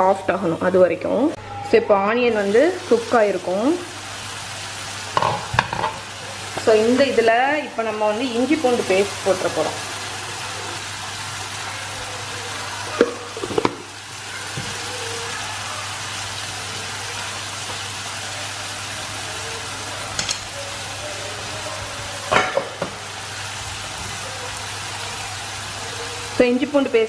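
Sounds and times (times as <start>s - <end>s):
onions sizzling in oil: 0.0s - 27.0s
spoon tapping pan: 5.1s - 6.7s.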